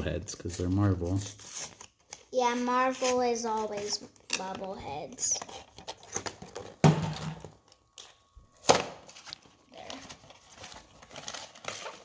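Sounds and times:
packaging crinkling and tearing: 7.6s - 12.0s.

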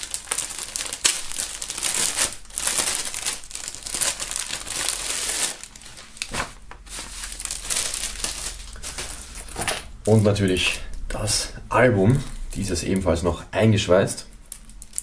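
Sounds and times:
plastic bag crinkling: 0.0s - 11.0s, 14.3s - 15.0s.

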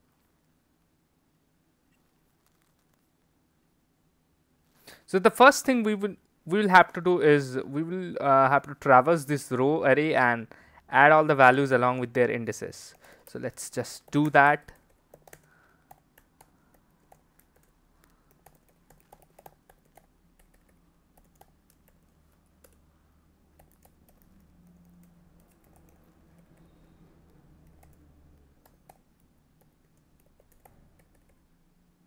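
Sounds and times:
typing on computer keyboard: 14.0s - 22.8s, 23.5s - 31.5s.

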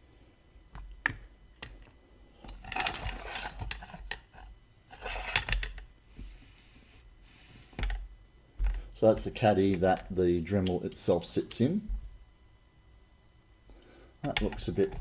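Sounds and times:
parts clattering on tabletop: 2.4s - 5.8s.

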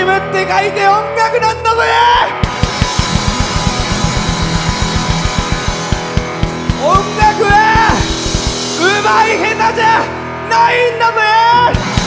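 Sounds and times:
bass guitar: 0.0s - 12.0s
electric guitar: 0.0s - 12.0s
fast driving drum beat: 2.4s - 9.8s, 11.7s - 12.0s.

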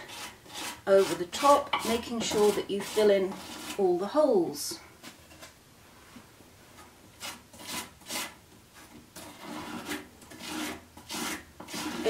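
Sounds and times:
spatula knife scraping compound: 0.0s - 4.0s, 6.8s - 12.0s.

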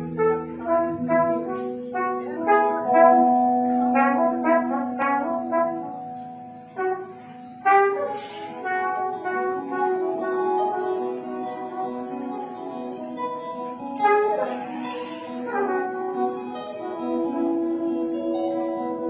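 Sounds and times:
trumpet playing short notes: 0.1s - 12.7s.

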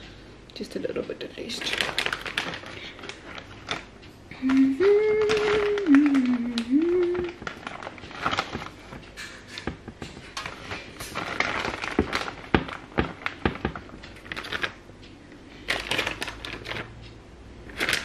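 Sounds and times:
plastic packet crinkling: 1.4s - 9.1s, 10.4s - 14.8s, 15.7s - 16.9s, 17.7s - 18.0s.

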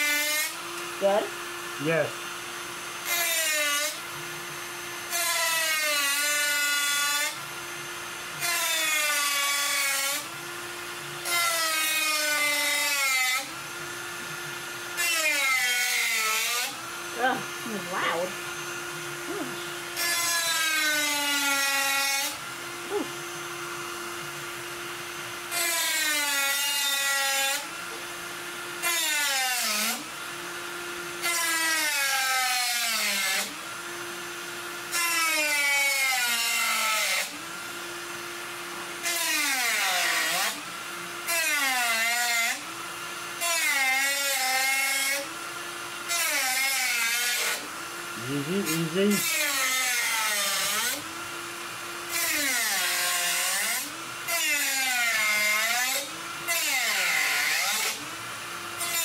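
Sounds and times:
rotary tool motor whine: 0.0s - 59.0s
cut-off wheel grinding metal: 43.3s - 59.0s.

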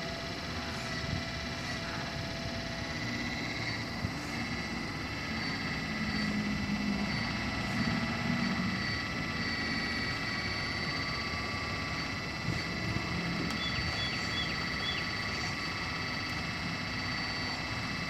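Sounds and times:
low hum: 0.0s - 18.0s
model excavator motor whine: 0.0s - 18.0s.

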